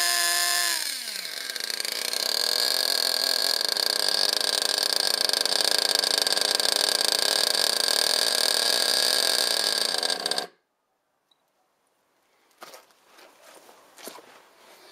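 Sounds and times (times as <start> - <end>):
small glow engine buzzing: 0.0 - 10.6.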